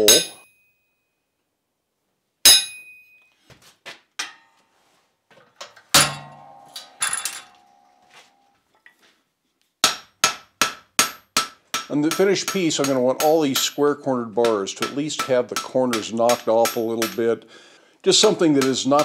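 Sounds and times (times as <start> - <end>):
tools clinking: 0.0 - 0.6, 2.5 - 3.4, 5.6 - 8.1.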